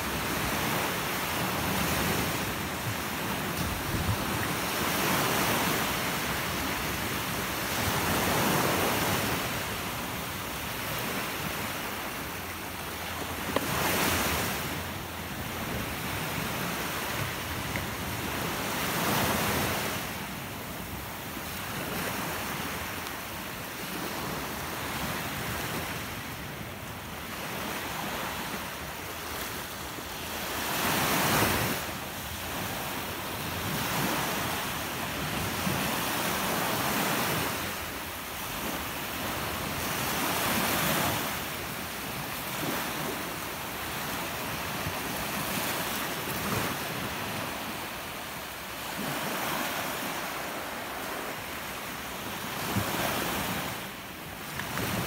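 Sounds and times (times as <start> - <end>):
wind on microphone: 0.0 - 23.0
waves washing up a beach: 0.0 - 55.0.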